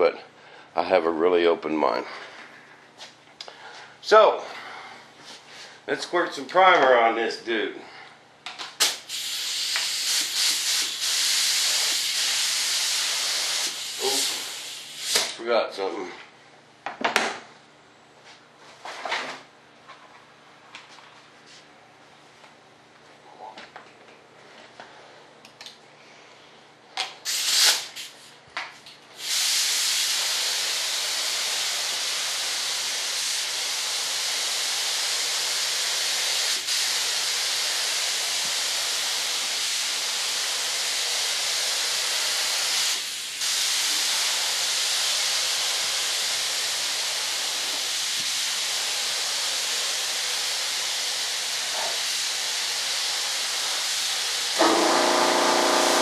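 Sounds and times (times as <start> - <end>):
spray gun hissing air: 9.0 - 15.3, 27.3 - 28.2, 29.2 - 56.0.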